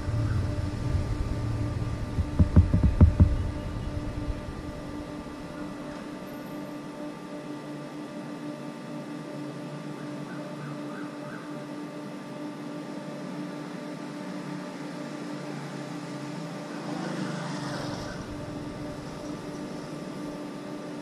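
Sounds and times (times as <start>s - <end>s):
street background hum: 0.0s - 21.0s
vehicle passing: 16.7s - 19.6s.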